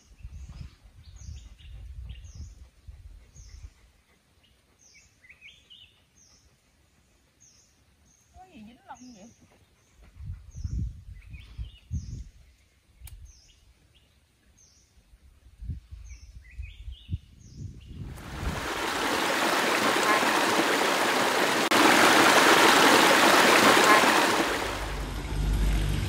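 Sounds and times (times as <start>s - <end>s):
stream rushing over boulders: 18.1s - 25.3s.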